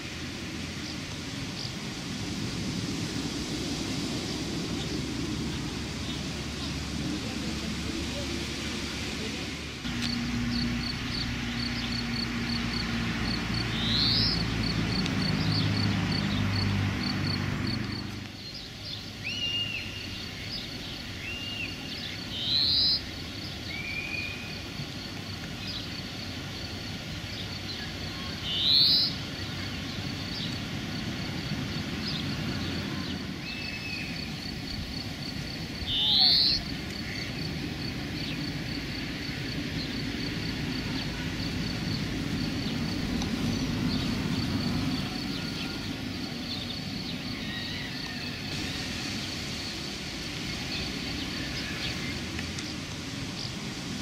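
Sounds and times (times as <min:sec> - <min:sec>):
high pulsing bird chirp: 0:13.6 - 0:14.5, 0:17.7 - 0:24.7, 0:27.3 - 0:30.6, 0:35.8 - 0:37.3.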